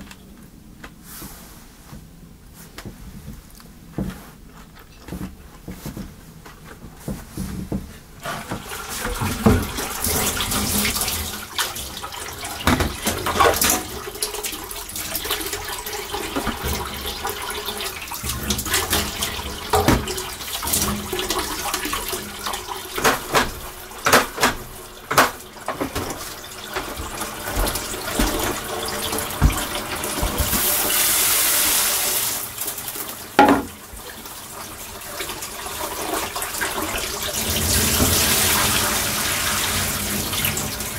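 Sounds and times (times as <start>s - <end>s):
dishes clattering in sink: 7.1s - 30.8s, 33.3s - 33.9s
tap water running into sink: 8.2s - 40.9s.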